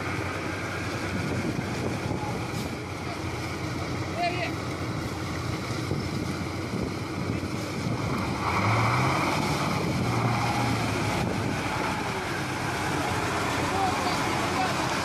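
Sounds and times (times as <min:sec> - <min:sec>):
truck engine under load: 0:00.0 - 0:15.0
water churning and splashing: 0:00.0 - 0:15.0
wind on microphone: 0:00.6 - 0:03.0, 0:05.6 - 0:12.5.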